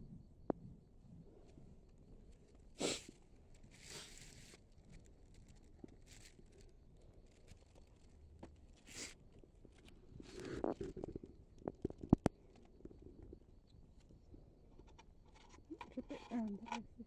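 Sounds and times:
hands rustling and scraping: 2.2 - 13.0.

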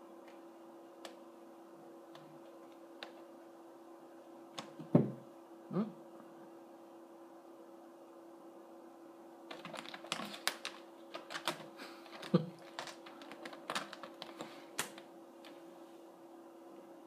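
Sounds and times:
kitten claws scratching on chair: 9.5 - 15.0.

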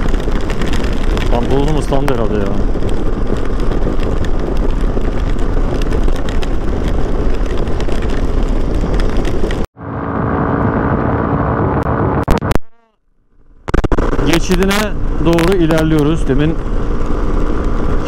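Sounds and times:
wind buffeting microphone: 0.0 - 12.2
steady engine hum: 0.0 - 12.4, 13.1 - 18.0
motorcycle engine: 0.0 - 18.0.

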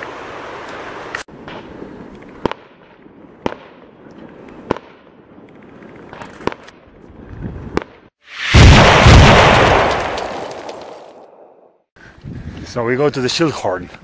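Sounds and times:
fireworks bangs: 7.6 - 11.5.

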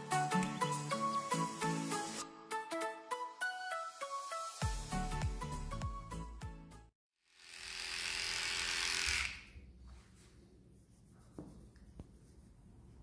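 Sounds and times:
electric dog clipper buzzing: 7.2 - 9.6.

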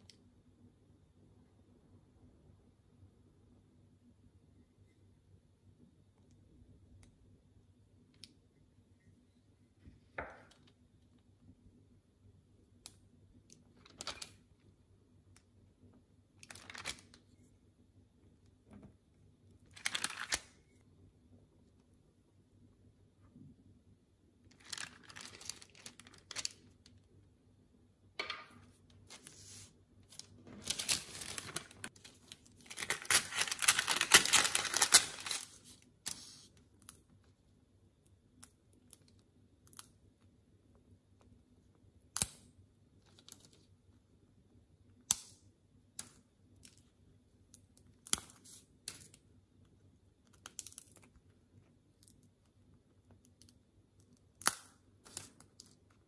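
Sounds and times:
parchment paper crinkling: 13.4 - 14.6, 16.4 - 17.5, 19.6 - 20.8, 24.5 - 27.2, 28.7 - 37.2, 53.2 - 56.0
brittle candy snapping: 24.5 - 26.8, 38.4 - 40.0, 50.2 - 51.2, 53.2 - 55.9.

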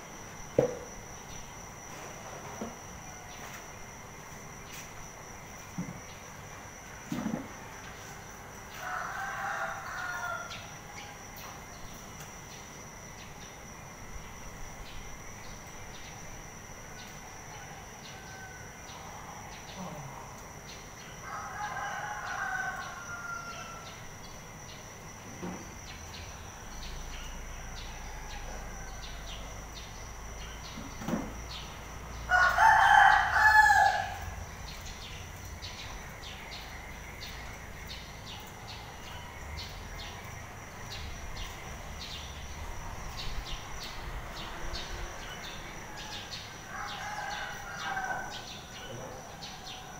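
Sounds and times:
high-pitched insect trill: 0.0 - 49.9
rooster crowing: 7.5 - 11.2, 17.5 - 19.4, 21.2 - 24.1, 27.2 - 29.8, 32.2 - 34.4, 43.0 - 49.9.

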